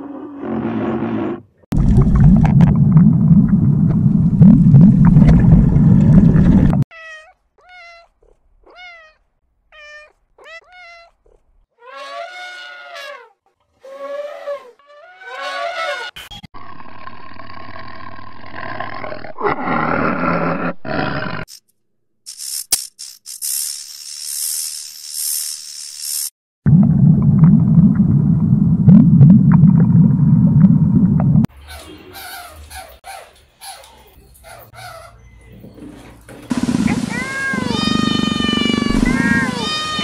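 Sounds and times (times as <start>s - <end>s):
tiger snarling growl: 0.0s - 1.5s, 38.3s - 39.4s
deep rough roar: 36.5s - 40.0s
kitten mewing: 36.9s - 40.0s.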